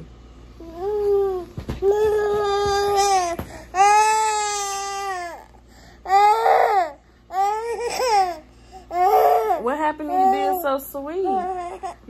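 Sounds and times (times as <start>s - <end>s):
toddler boy crying: 0.6s - 12.0s.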